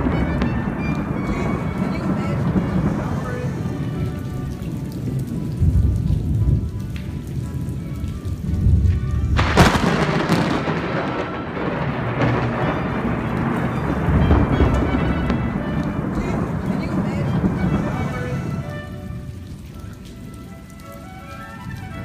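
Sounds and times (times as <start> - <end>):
sharp close thunderclap: 0.0 - 4.2, 4.8 - 6.7, 8.6 - 18.7
low rumbles of thunder: 0.0 - 20.2
steady rain: 0.0 - 22.0.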